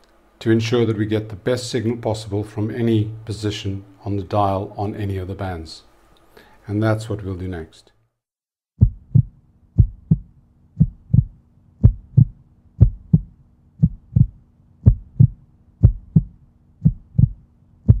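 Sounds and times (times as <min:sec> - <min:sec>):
heartbeat-like low thumps: 0:08.8 - 0:18.0.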